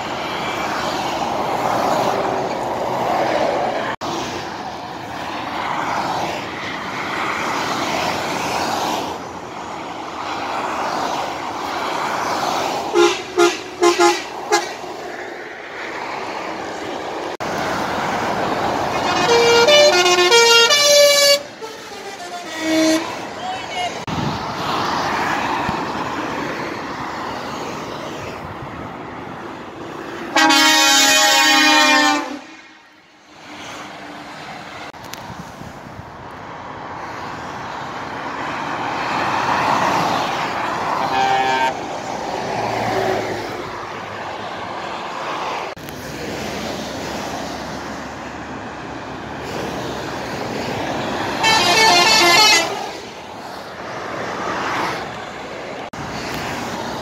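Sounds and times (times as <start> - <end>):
motorway traffic passing: 0.0 - 57.0
truck air horn blasts: 12.9 - 14.8, 18.9 - 23.3, 30.3 - 32.7, 41.0 - 41.8, 51.4 - 52.9.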